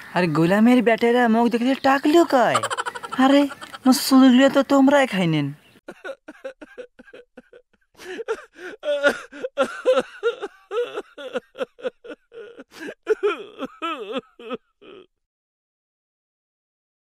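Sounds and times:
person making wordless vocal sounds: 2.5 - 4.0, 6.0 - 15.2.

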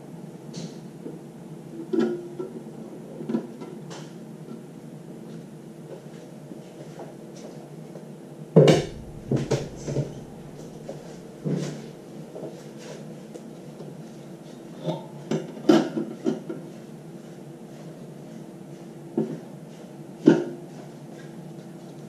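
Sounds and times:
steady low hum: 8.7 - 14.7.

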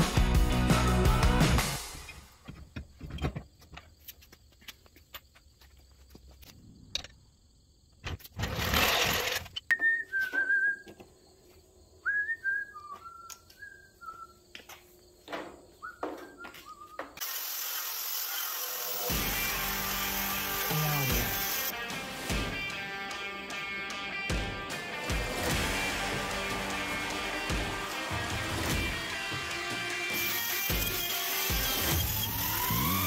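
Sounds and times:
person whistling a tune: 9.7 - 11.0, 12.0 - 14.4, 15.8 - 17.2.

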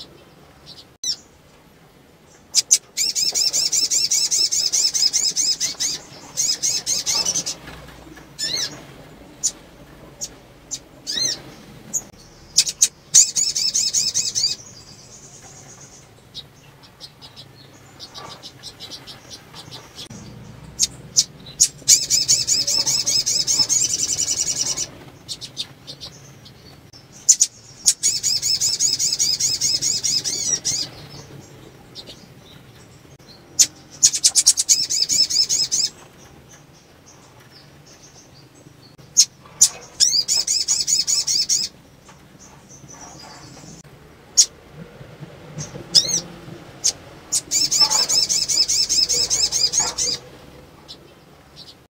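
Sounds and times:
bird chittering trills: 0.0 - 1.4, 2.3 - 44.5, 45.6 - 51.9
sharp bird chips: 12.1 - 16.1.

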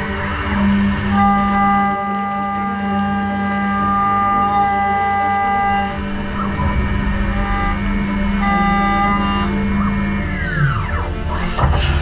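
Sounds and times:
high-pitched milling machine whine: 0.0 - 11.7.

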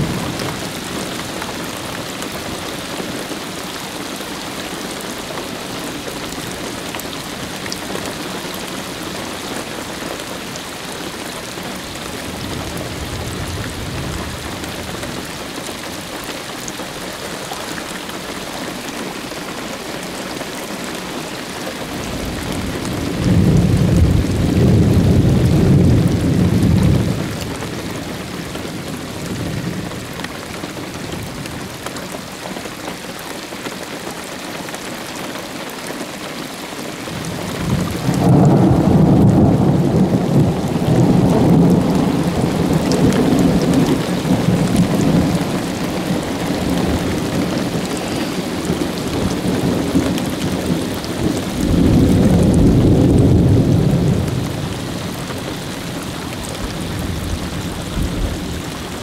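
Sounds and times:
thunder rumbling: 0.0 - 1.8, 22.0 - 30.1, 37.1 - 59.0
steady rain: 0.0 - 59.0.

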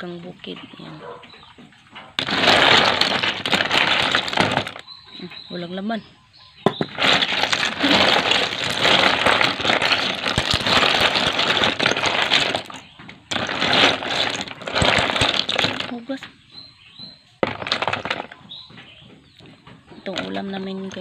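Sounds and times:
wet shellfish clattering: 2.1 - 5.5, 6.7 - 16.3, 17.4 - 18.8, 19.4 - 21.0.

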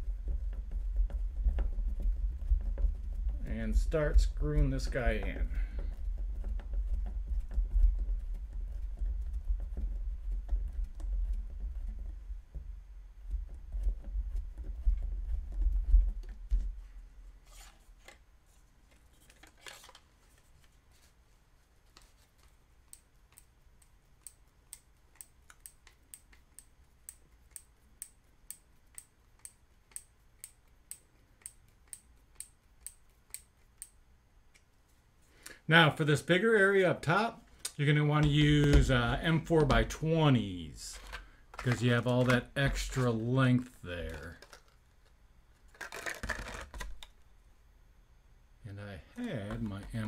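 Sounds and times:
screwdriver ticking: 22.9 - 34.0.

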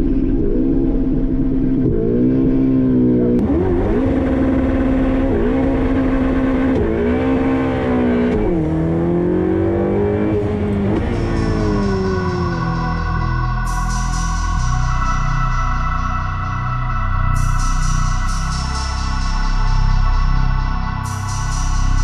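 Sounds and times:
sports car accelerating through gears: 0.3 - 13.2.

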